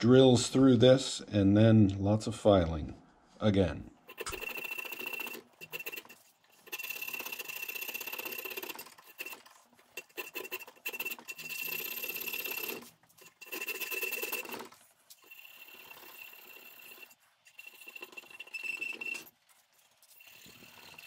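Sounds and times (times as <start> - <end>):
file rasping through hole: 4.1 - 19.3.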